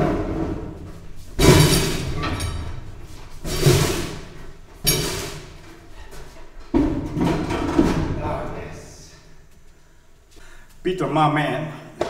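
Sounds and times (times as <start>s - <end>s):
loud thuds with scraping: 0.0s - 5.6s.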